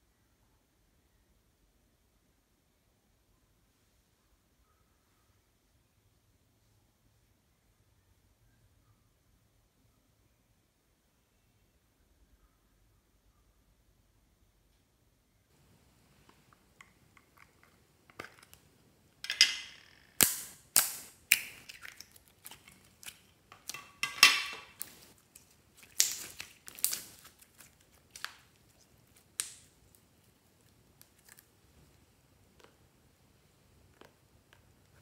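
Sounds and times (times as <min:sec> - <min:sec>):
slime popping and crackling: 0:19.5 - 0:31.6.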